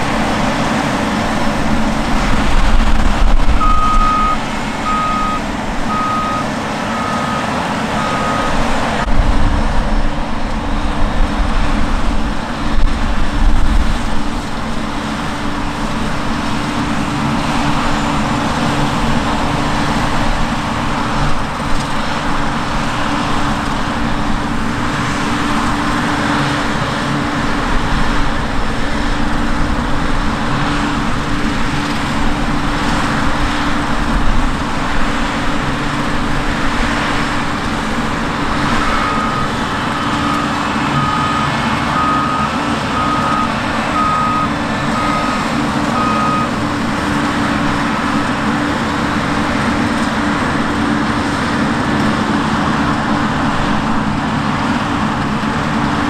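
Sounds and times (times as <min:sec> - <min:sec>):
combine harvester droning: 0:00.0 - 0:56.0
short electronic beeps: 0:03.6 - 0:08.6, 0:39.0 - 0:45.4, 0:46.0 - 0:46.5.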